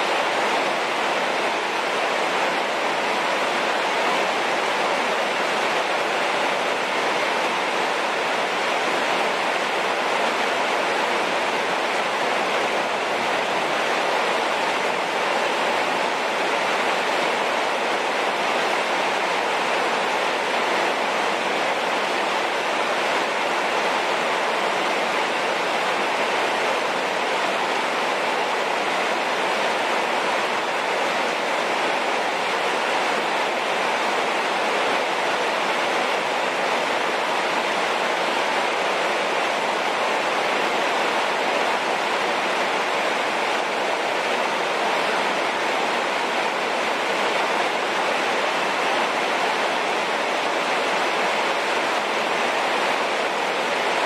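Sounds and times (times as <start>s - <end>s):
heavy rain on wet ground: 0.0s - 54.0s.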